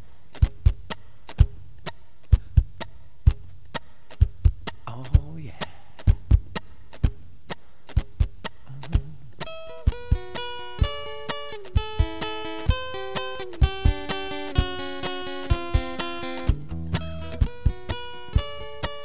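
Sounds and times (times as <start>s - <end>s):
steady low hum: 4.2s - 11.1s
voice-like hum: 8.6s - 9.4s.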